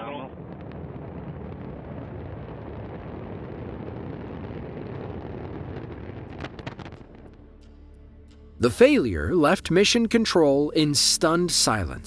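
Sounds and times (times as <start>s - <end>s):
deep rocket explosion rumble: 0.0s - 7.8s.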